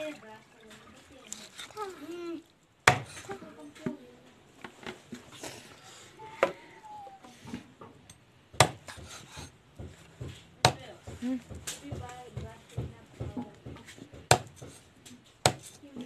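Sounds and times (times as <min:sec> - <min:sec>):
knife chopping chicken on wood: 0:02.9 - 0:03.1, 0:08.6 - 0:14.8, 0:15.4 - 0:15.7.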